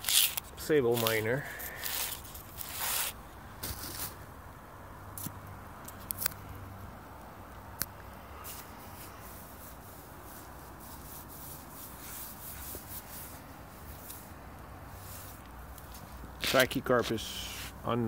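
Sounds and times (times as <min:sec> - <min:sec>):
faint rustling and scuffing: 0:00.9 - 0:04.3, 0:08.4 - 0:14.3, 0:14.9 - 0:18.0.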